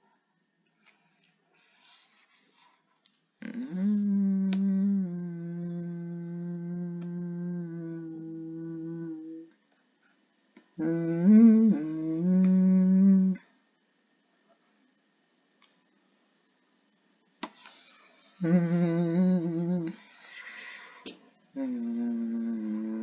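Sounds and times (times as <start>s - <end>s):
person humming: 3.4s - 9.6s, 10.8s - 13.5s, 18.4s - 20.8s, 21.5s - 23.0s.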